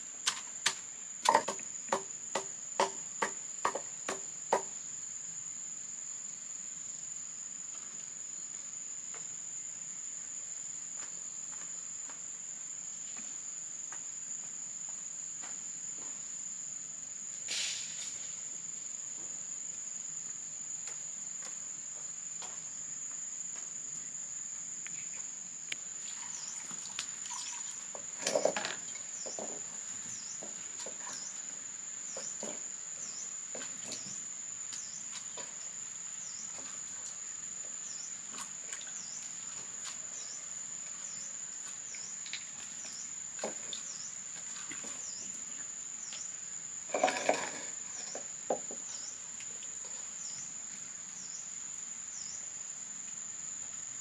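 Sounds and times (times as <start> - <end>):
sharp knocks: 0.6 - 4.7
insect trilling: 25.9 - 33.3.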